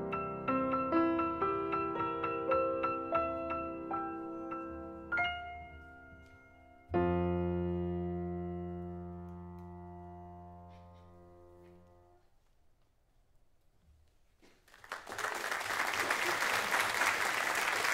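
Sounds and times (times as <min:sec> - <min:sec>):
audience applause: 0:14.6 - 0:17.9.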